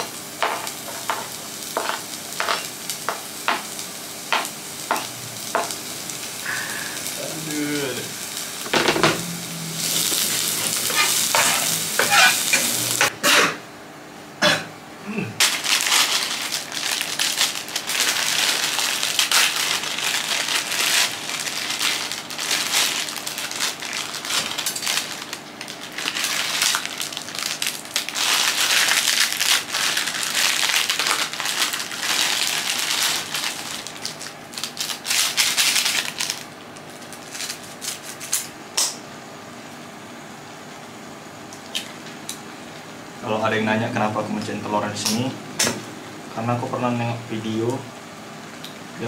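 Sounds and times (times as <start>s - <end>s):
plastic wrappers crinkling: 9.8s - 13.1s, 15.4s - 38.4s
dry noodles being crushed: 15.4s - 38.4s.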